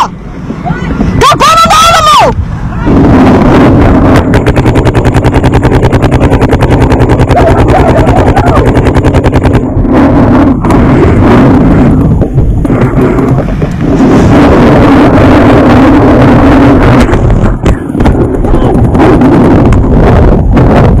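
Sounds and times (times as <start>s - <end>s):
wind rumble on microphone: 0.0s - 21.0s
paintball marker rapid firing: 3.8s - 21.0s
scattered pops and knocks: 3.9s - 10.0s, 12.1s - 13.9s, 15.4s - 21.0s.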